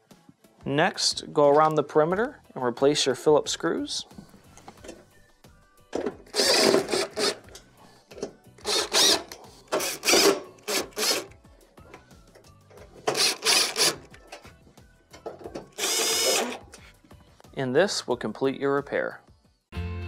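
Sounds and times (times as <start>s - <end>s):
cordless drill driving screws: 6.3s - 7.4s, 8.6s - 11.3s, 13.0s - 14.1s, 15.7s - 16.6s.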